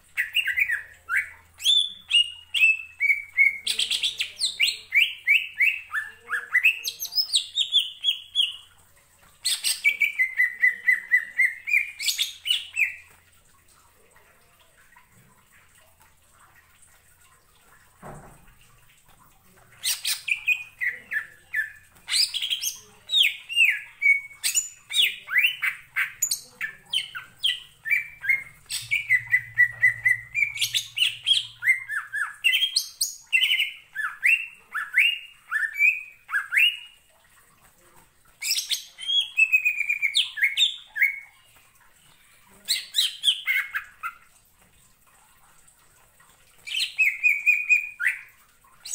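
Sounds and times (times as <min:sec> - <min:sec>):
bird whistling song: 0:19.9 - 0:36.9, 0:38.4 - 0:41.2, 0:46.6 - 0:48.9.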